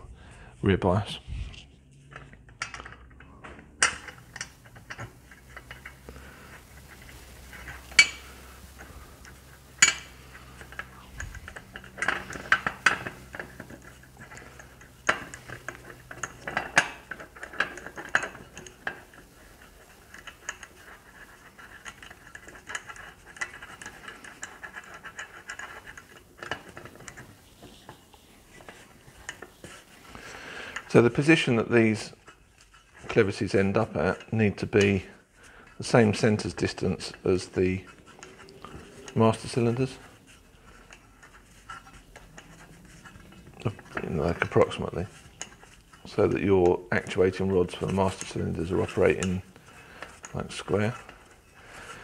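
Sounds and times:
metal parts clinking and clicking: 0:02.1 - 0:29.8.

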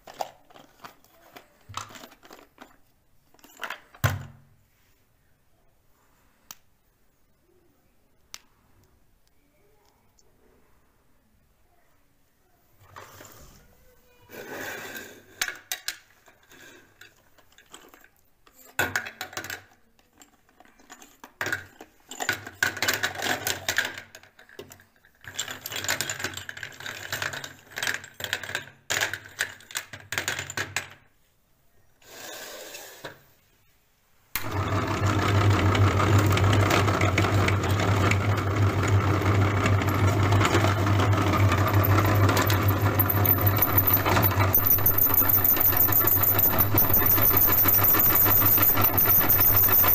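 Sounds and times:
electric meat grinder grinding: 0:34.4 - 0:49.9.

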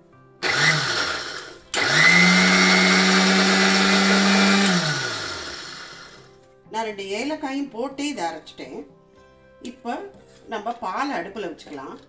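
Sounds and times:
mixer grinder motor running: 0:00.4 - 0:06.2.

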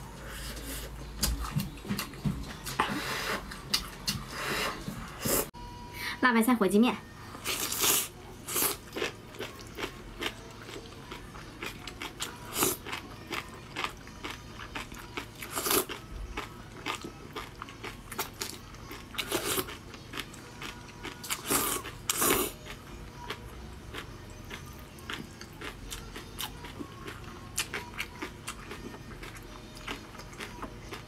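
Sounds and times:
chewing with crunches: 0:07.4 - 0:31.0.

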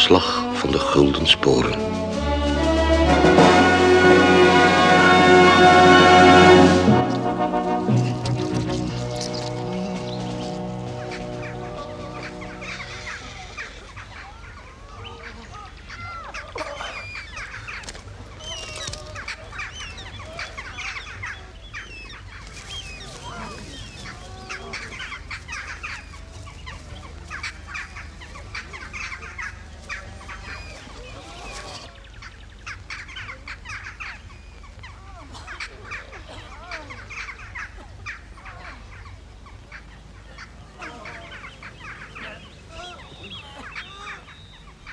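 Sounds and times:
flock of birds calling: 0:00.0 - 0:44.9
low hum: 0:01.7 - 0:13.2.

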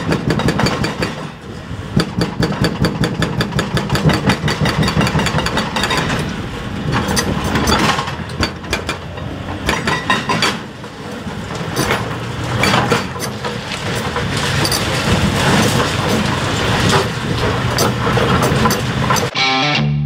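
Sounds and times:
concrete knocking and clattering: 0:00.0 - 0:01.3, 0:02.0 - 0:19.3
hydraulic breaker hammers pounding: 0:00.0 - 0:19.3
excavator diesel engines: 0:00.0 - 0:19.5.

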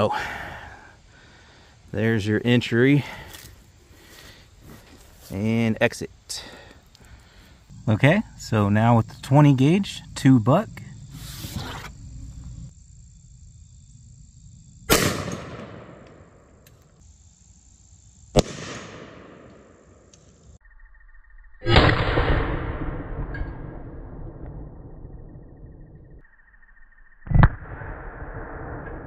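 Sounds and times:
shotgun blasts with echo: 0:14.9 - 0:16.4, 0:18.4 - 0:19.9, 0:21.6 - 0:24.2.

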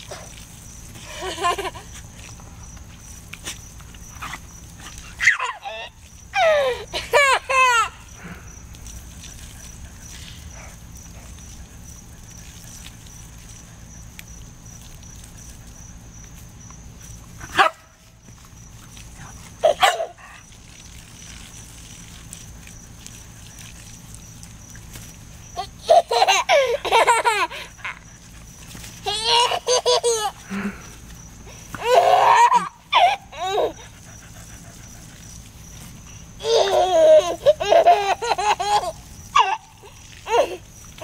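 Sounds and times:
toddler squealing and laughing: 0:05.1 - 0:08.0, 0:19.6 - 0:20.4, 0:29.0 - 0:30.4, 0:31.8 - 0:33.9, 0:36.4 - 0:40.6
dog barking: 0:17.5 - 0:17.8.

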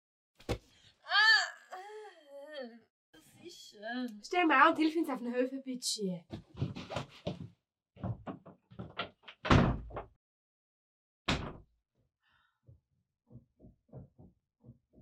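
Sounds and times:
knocks and clatter: 0:08.0 - 0:10.1, 0:13.3 - 0:15.0
wooden door banging shut: 0:08.1 - 0:10.2, 0:11.3 - 0:11.7.

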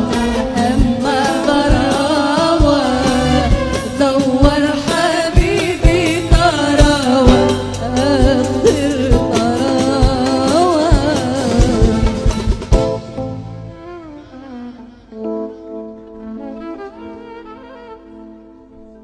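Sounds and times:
wavering violin melody: 0:00.0 - 0:06.8, 0:10.8 - 0:19.0
person singing: 0:00.0 - 0:12.5
steady drum beat: 0:00.0 - 0:13.9.

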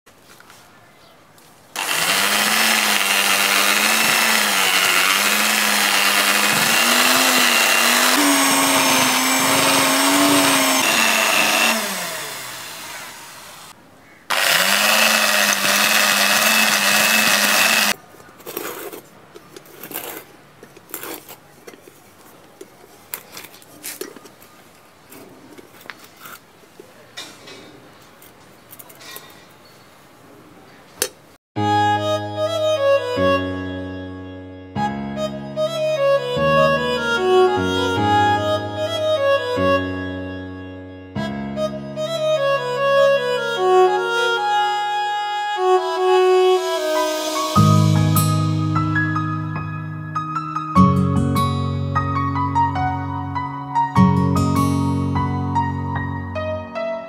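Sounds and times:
electric drill boring into sand: 0:01.8 - 0:13.7, 0:14.3 - 0:18.0.

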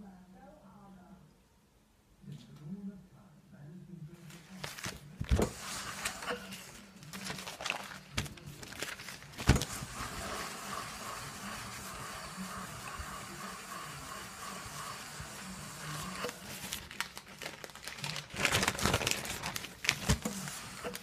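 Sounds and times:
paper rustling: 0:04.2 - 0:21.0
steam iron hiss: 0:05.4 - 0:06.6, 0:09.6 - 0:16.5.

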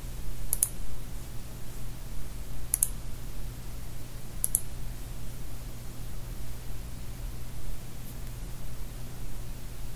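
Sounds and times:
steady low hum: 0:00.0 - 0:09.9
computer mouse clicks: 0:00.5 - 0:00.8, 0:02.7 - 0:03.0, 0:04.4 - 0:04.7.

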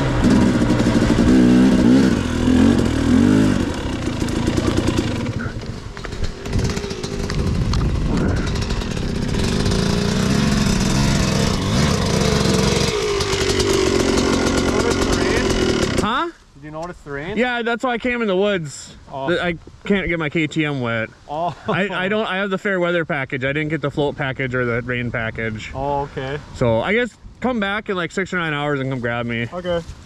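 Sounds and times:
dirt bike engines revving: 0:00.0 - 0:16.3.

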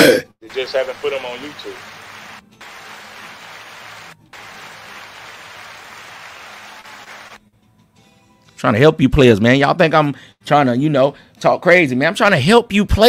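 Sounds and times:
steady hiss: 0:00.5 - 0:07.4.

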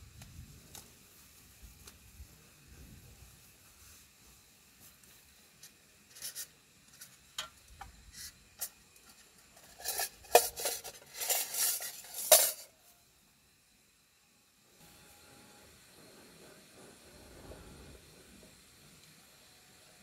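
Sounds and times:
small objects clinking and scraping: 0:08.1 - 0:12.8.

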